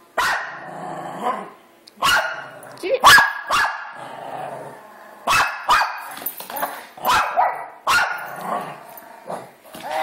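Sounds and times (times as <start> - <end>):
small dog barking: 0.2 - 0.6, 2.0 - 2.4, 3.0 - 3.9, 5.3 - 6.0, 7.1 - 8.2.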